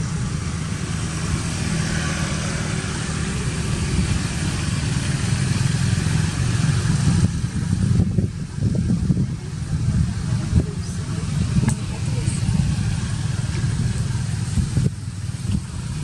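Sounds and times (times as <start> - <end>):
engine idling: 0.0 - 16.0.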